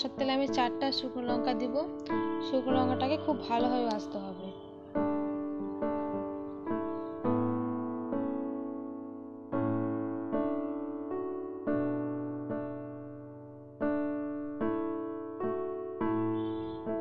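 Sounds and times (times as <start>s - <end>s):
slow piano-like keyboard melody: 0.0s - 17.0s.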